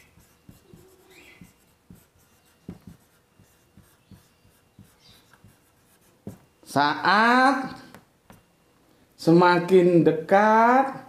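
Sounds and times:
marker tip squeaks: 0.0s - 6.4s
marker writing on whiteboard: 0.0s - 6.5s.

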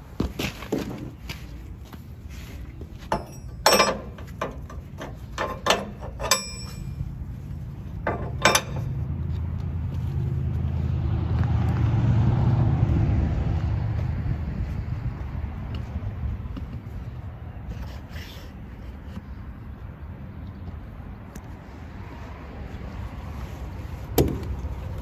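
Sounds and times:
sharp metallic clanks: 3.1s - 7.1s, 8.0s - 9.1s
vehicle engine running: 6.6s - 17.7s.

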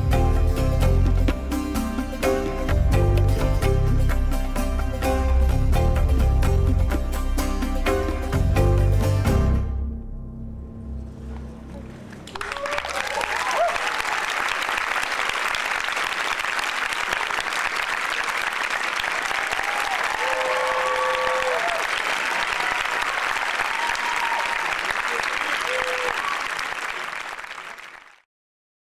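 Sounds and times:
audience cheering: 12.1s - 28.2s
audience applauding: 12.1s - 28.3s.

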